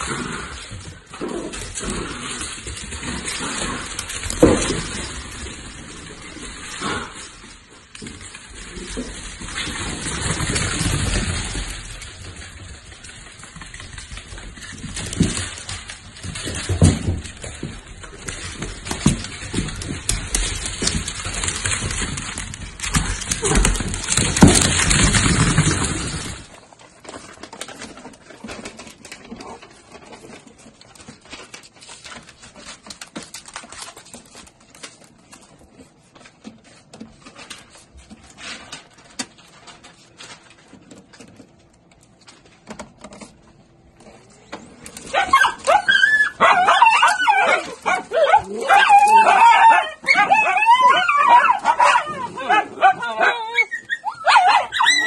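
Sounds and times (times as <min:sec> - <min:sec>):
dogs whining and yipping: 0:45.1 - 0:55.0.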